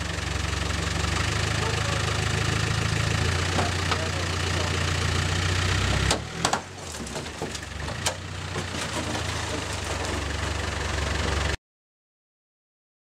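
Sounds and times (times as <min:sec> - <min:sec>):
diesel engine idling: 0:00.0 - 0:11.6
sharp engine knocks: 0:03.5 - 0:04.4, 0:05.8 - 0:11.4.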